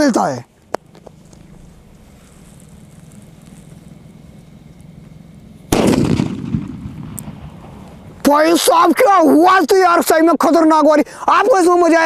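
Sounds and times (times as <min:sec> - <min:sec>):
firecracker bang: 0:05.7 - 0:08.1
rumbling echo: 0:05.7 - 0:08.2.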